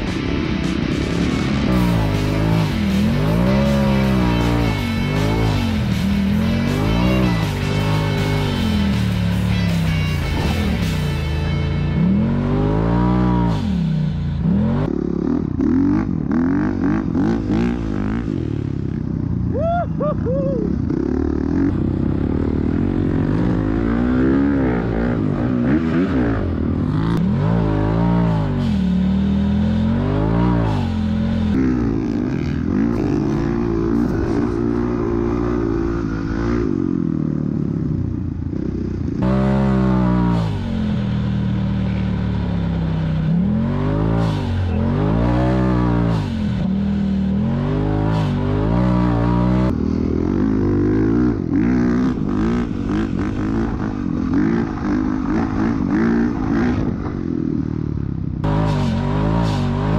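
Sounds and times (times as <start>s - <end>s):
dirt bike engine revving: 0.0s - 19.3s, 20.2s - 59.9s.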